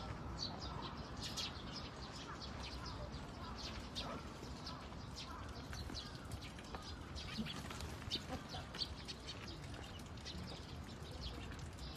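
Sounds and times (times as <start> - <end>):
small birds chirping: 0.0 - 11.9.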